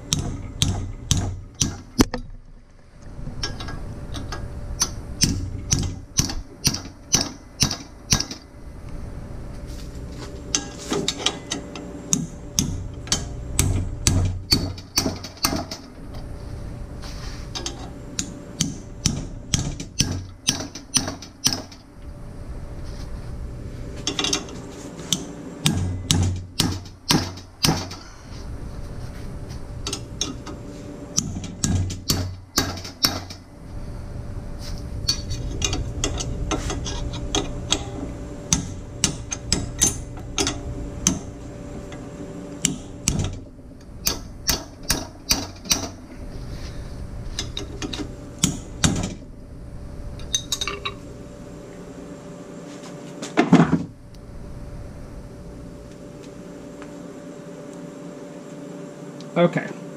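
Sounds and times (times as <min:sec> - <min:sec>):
vise clicking and creaking: 0:00.0 - 0:08.4, 0:10.5 - 0:16.3, 0:17.5 - 0:21.9, 0:24.0 - 0:28.1, 0:35.0 - 0:42.0, 0:42.6 - 0:46.2, 0:47.2 - 0:49.3.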